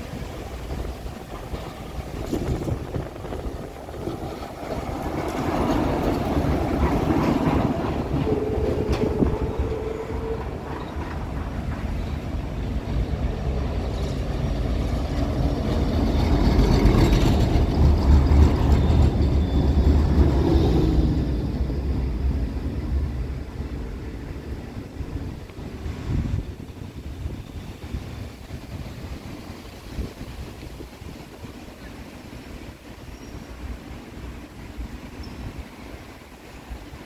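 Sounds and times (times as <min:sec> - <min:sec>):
tram rumbling on track: 0:00.0 - 0:37.0
tram whining: 0:00.0 - 0:37.0.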